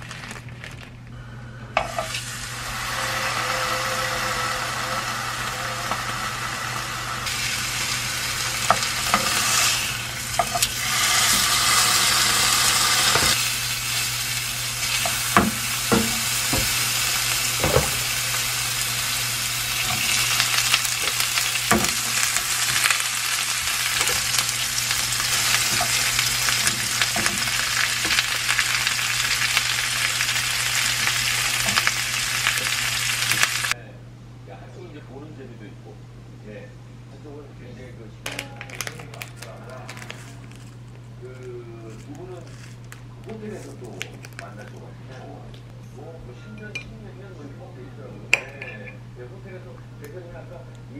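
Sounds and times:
steaks sizzling in a pan: 0:01.8 - 0:33.8.

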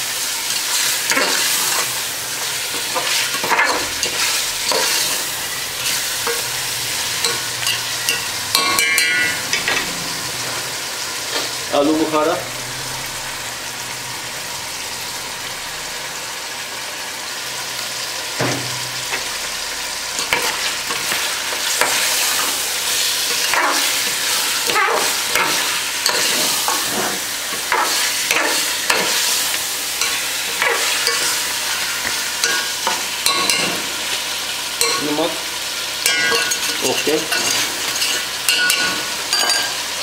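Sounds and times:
food sizzling in a pot: 0:00.0 - 0:40.0
metal ladle scraping a pot: 0:20.2 - 0:34.0.

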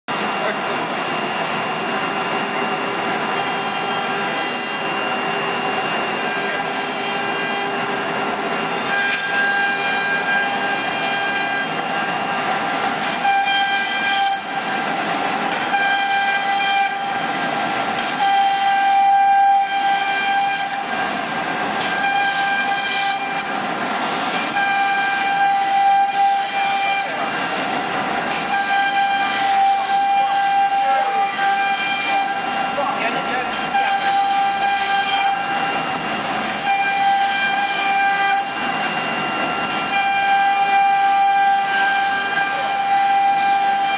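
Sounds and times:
router spindle whining: 0:00.1 - 0:43.9.

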